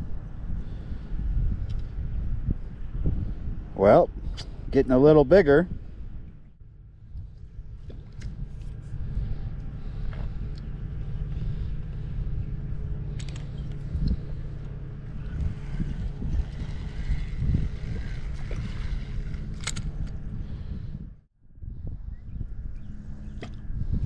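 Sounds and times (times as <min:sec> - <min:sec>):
wind buffeting microphone: 0:00.0 - 0:24.0
fishing reel clicks: 0:15.4 - 0:20.2.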